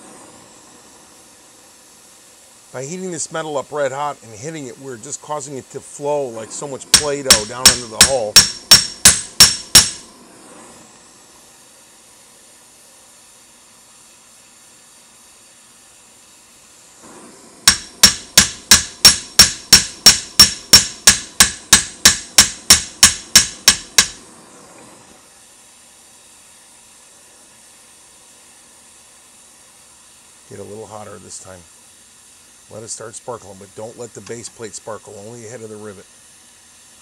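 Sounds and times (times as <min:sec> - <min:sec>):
gas torch hissing: 0:00.0 - 0:37.0
hammer striking hot rivet: 0:06.9 - 0:10.1, 0:17.6 - 0:24.2.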